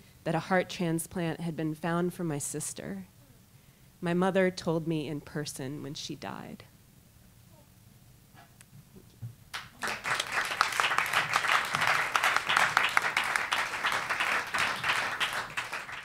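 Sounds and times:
lone claps: 9.5s - 16.0s
audience applause: 9.6s - 16.0s.

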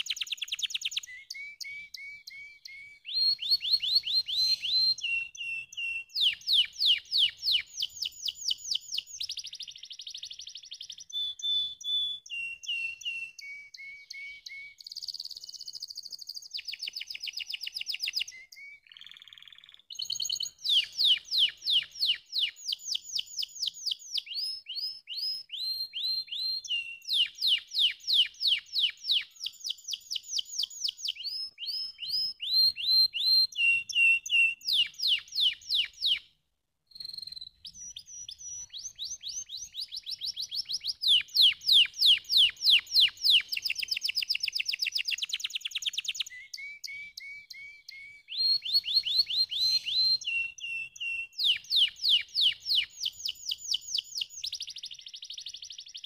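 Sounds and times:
canary singing trills: 0.0s - 36.3s, 36.9s - 56.0s.

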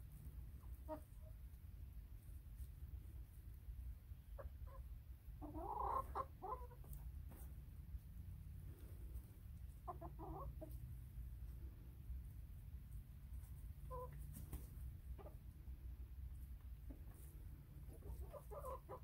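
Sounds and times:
hens clucking: 0.0s - 2.0s, 4.1s - 7.5s, 8.6s - 11.7s, 12.6s - 19.0s.

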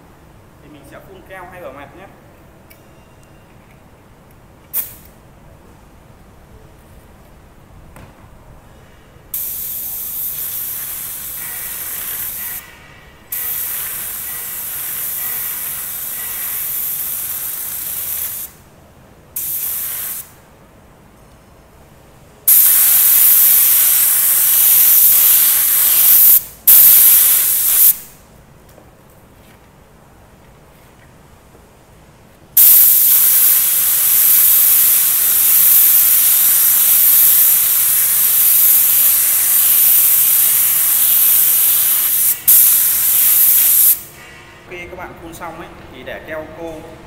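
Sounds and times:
spray gun hissing: 9.3s - 12.6s, 13.3s - 18.5s, 22.5s - 28.1s, 32.6s - 44.2s.

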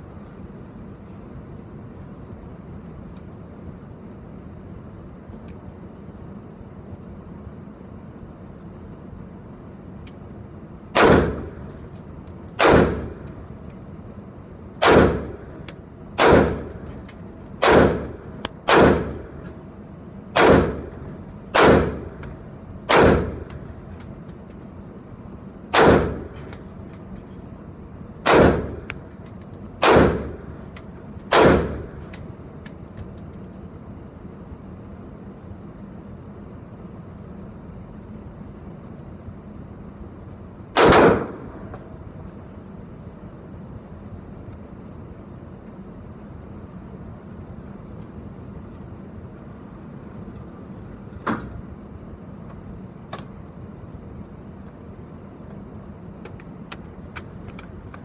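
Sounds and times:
rifle shots in indoor range: 10.9s - 14.2s, 14.8s - 19.5s, 20.3s - 24.6s, 25.7s - 26.7s, 28.2s - 32.4s, 40.7s - 41.9s
light metallic clinks: 13.3s - 14.3s, 16.6s - 17.6s, 23.4s - 25.0s, 26.5s - 27.5s, 28.9s - 29.8s, 30.8s - 33.8s.

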